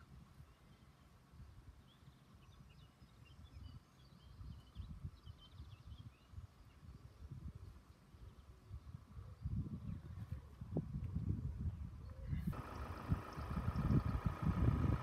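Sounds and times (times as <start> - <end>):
faint bird chirps: 12.0 - 14.5
low uneven rumble: 12.4 - 15.0.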